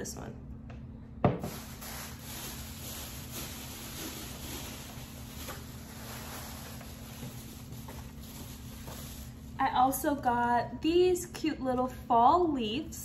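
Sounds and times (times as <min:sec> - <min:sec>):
low hum and hiss: 0:00.0 - 0:13.0
plastic bags rustling: 0:01.4 - 0:09.6.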